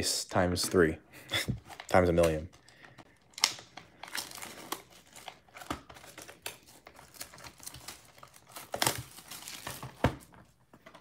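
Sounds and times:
plastic shrink wrap crinkling: 1.6 - 10.3.

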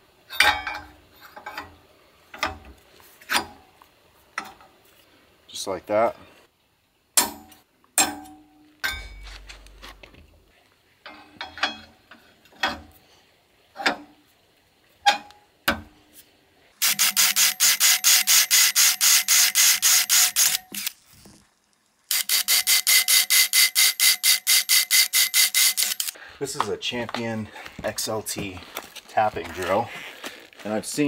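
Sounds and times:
steel post ringing: 7.2 - 9.4
cordless drill boring into steel: 16.8 - 21.0, 22.1 - 26.2.

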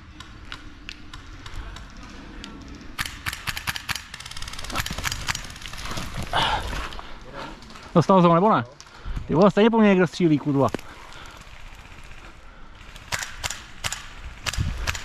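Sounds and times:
airsoft guns firing: 3.0 - 5.8, 12.8 - 15.0.

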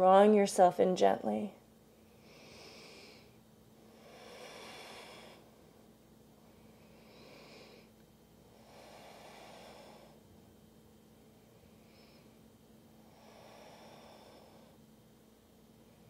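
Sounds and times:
person breathing slowly: 2.0 - 10.3, 11.4 - 14.8.

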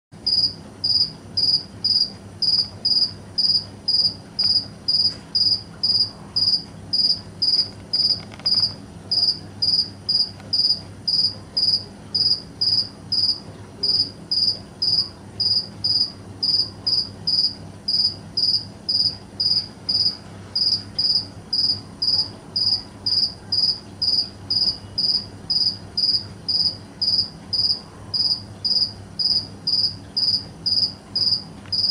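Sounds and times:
cricket chirping: 0.2 - 31.9.

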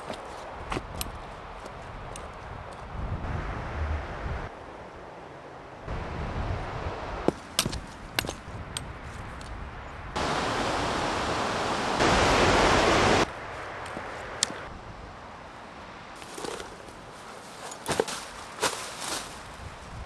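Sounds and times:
steady rushing noise: 3.0 - 8.9, 10.1 - 16.1.

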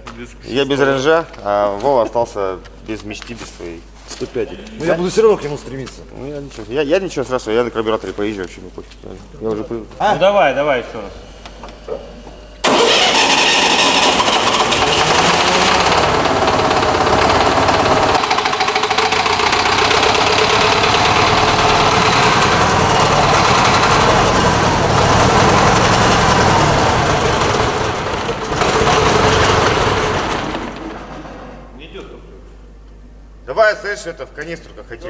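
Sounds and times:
truck engine running loudly: 12.6 - 30.8.

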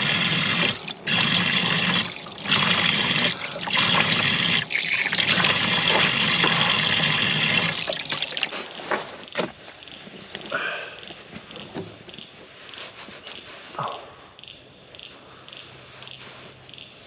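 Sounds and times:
water pouring from shower nozzle: 0.0 - 8.6
water splashing on face: 0.0 - 8.6.

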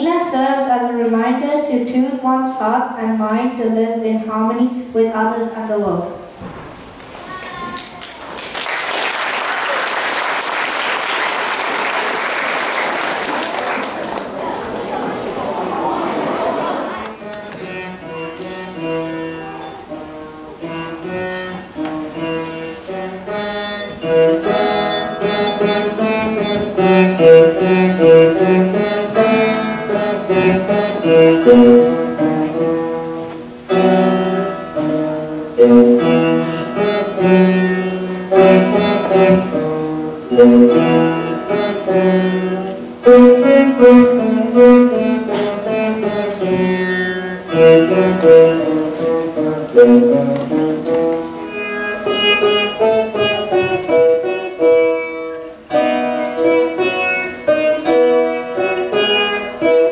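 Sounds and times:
plucked string melody: 14.2 - 59.9.

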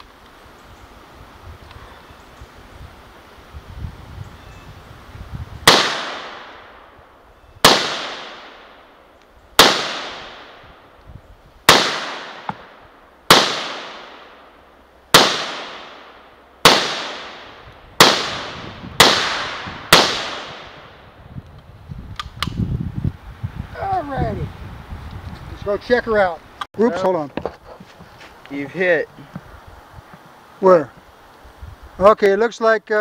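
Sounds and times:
rifle shots with echo: 5.6 - 6.8, 7.6 - 8.8, 9.6 - 10.6, 11.7 - 14.4, 15.1 - 21.0.

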